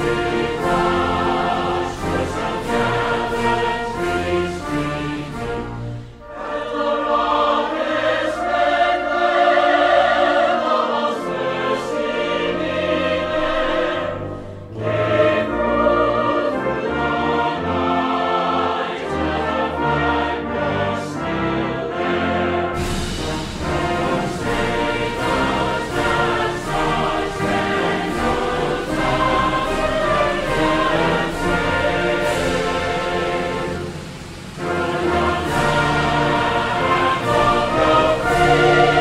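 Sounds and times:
choir singing sustained chords: 0.0s - 39.0s
orchestra playing: 0.0s - 39.0s.

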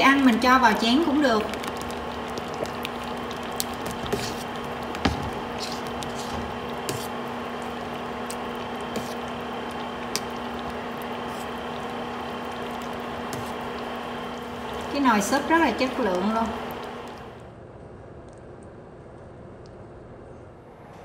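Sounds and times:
steady low hum: 0.0s - 21.0s
soup bubbling with plopping pops: 0.1s - 15.0s, 16.0s - 17.4s.

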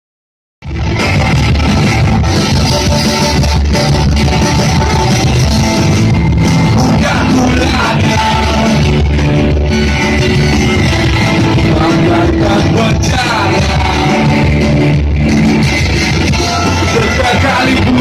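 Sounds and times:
live rock band playing: 0.6s - 18.0s
person singing: 6.6s - 9.2s, 11.3s - 14.6s, 16.5s - 18.0s.

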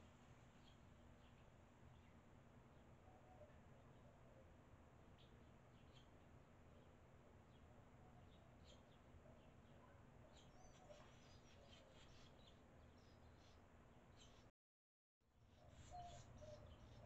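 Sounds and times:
swallows chirping and twittering: 5.1s - 14.5s, 15.4s - 17.0s.

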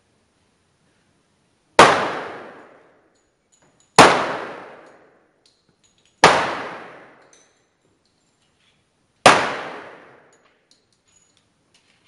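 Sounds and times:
pistol shots with echo: 1.8s - 3.0s, 4.0s - 5.2s, 6.2s - 7.3s, 9.2s - 10.3s.

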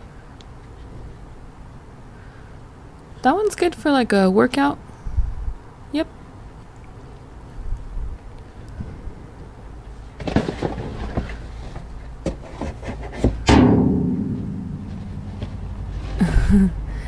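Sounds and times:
trash clattering in metal dumpster: 10.2s - 16.2s
loud bang on metal dumpster: 13.4s - 16.1s.

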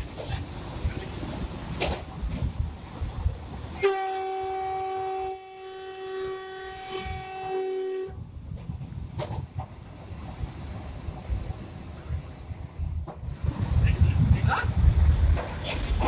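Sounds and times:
train running rumble: 0.0s - 16.0s
train horn blast: 3.8s - 8.2s.

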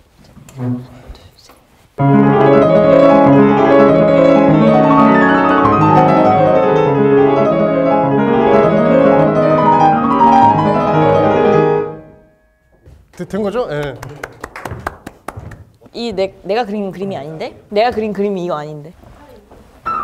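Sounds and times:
fast grand piano passage: 2.0s - 12.4s.

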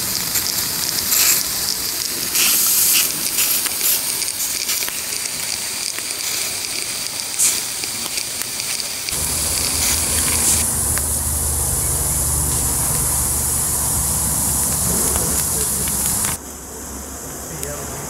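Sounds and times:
steam locomotive hissing: 0.0s - 16.4s
low rumble: 9.2s - 16.4s.

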